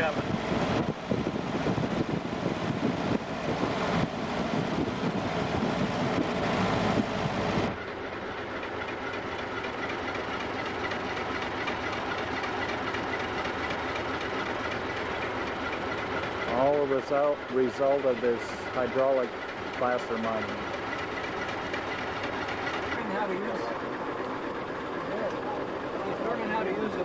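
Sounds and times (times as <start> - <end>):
wind buffeting: 0.0 - 7.8
car engine and road noise: 0.0 - 27.0.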